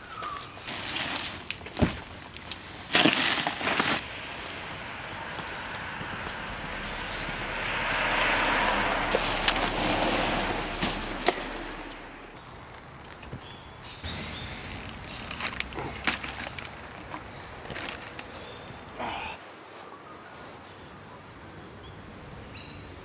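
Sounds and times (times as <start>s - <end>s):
car passing on wet street: 4.0s - 13.0s.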